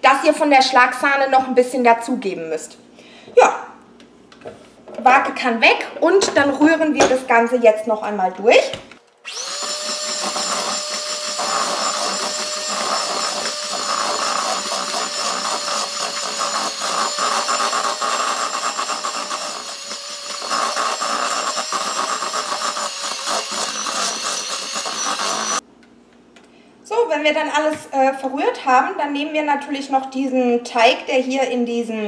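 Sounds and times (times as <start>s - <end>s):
electric hand mixer whining: 9.2s - 25.6s.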